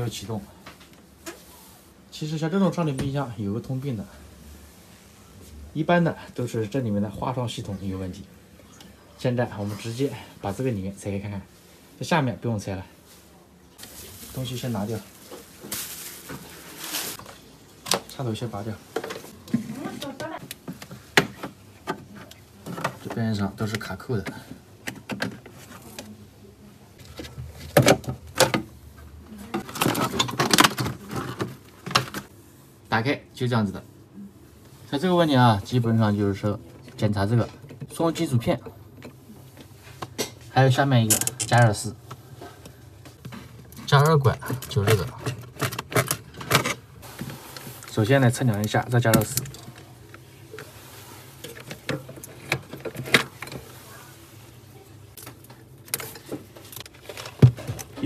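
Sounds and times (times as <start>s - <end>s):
hands rustling wires: 13.8s - 26.2s
plastic cracking and scraping: 29.5s - 32.3s.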